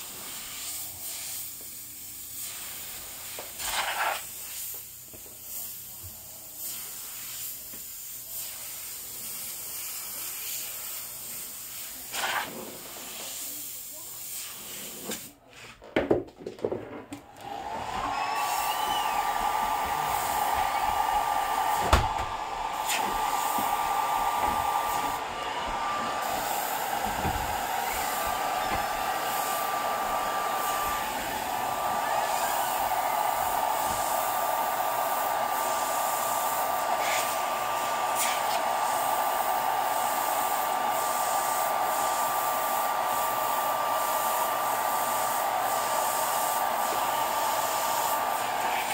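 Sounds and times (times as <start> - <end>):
hair dryer blowing with motor whine: 17.4 - 48.9.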